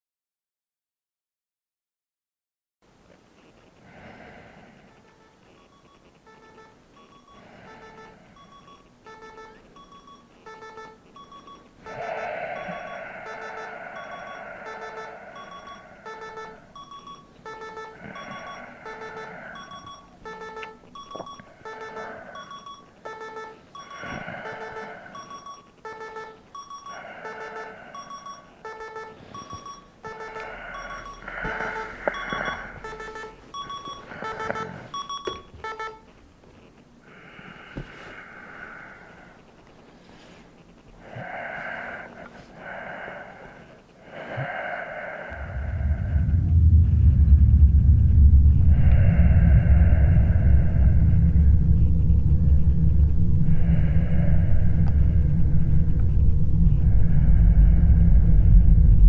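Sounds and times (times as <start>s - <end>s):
alarm clock beeping: 5.0s - 36.1s.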